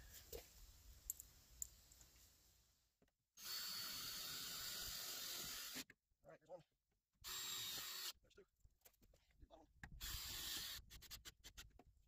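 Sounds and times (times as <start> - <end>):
cordless drill driving a screw: 3.4 - 5.8, 7.2 - 8.1, 10.0 - 11.1.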